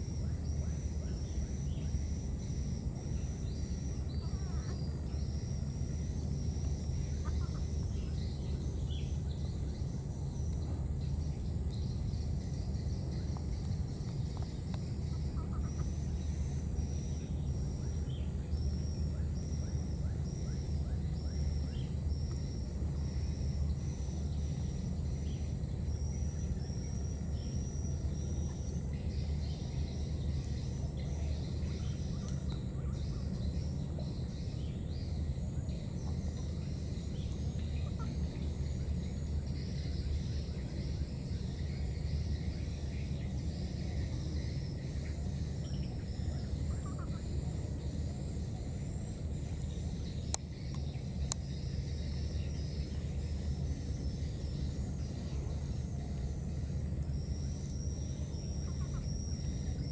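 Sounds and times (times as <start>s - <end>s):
faint high hiss with ticks: 11.3s - 16.0s, 49.8s - 59.6s.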